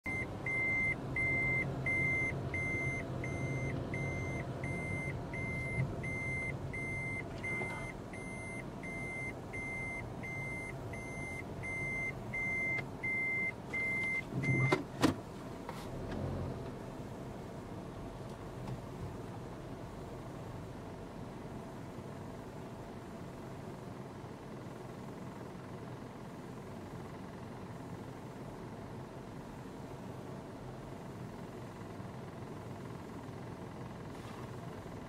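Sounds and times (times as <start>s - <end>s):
vehicle warning beeper: 0.1s - 14.8s
engine running: 0.1s - 35.0s.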